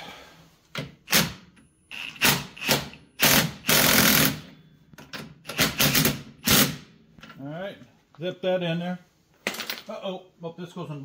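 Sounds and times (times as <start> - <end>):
impact wrench hammering: 0.8 - 6.9.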